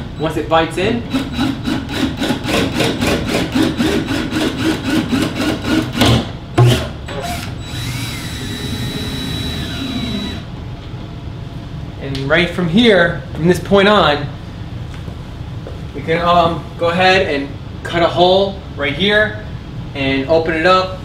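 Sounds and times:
power drill boring into wood: 0:07.2 - 0:10.4.

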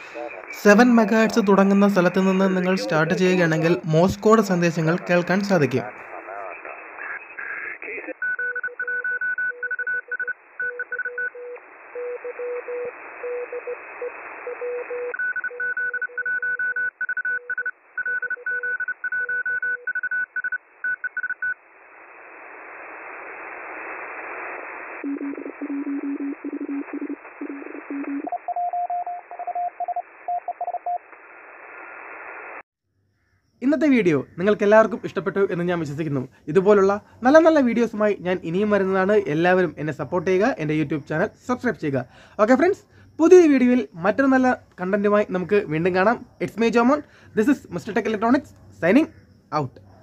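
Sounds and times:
radio band hiss: 0:00.0 - 0:08.2, 0:21.9 - 0:25.7, 0:31.0 - 0:32.6
morse code beeping tones: 0:08.2 - 0:11.4, 0:15.0 - 0:21.5, 0:25.0 - 0:31.0.

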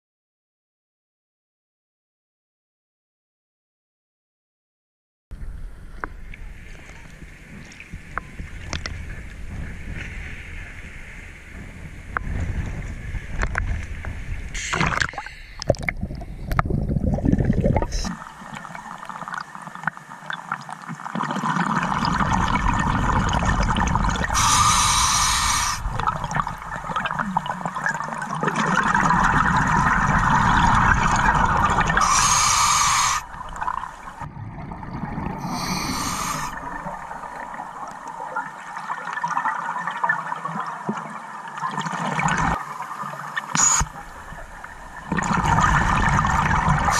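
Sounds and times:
regulator bubbles gurgling: 0:14.6 - 0:46.9
hissing inhalations: 0:24.3 - 0:25.8, 0:32.0 - 0:33.3, 0:35.4 - 0:36.6, 0:43.6 - 0:43.9.

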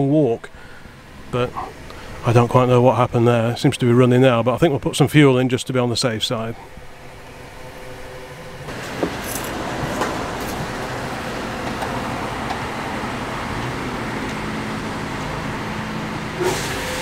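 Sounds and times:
low steady hum: 0:00.0 - 0:16.4.

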